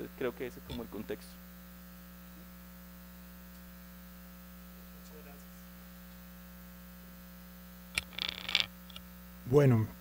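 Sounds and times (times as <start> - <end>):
faint mains hum: 0.0 - 10.0.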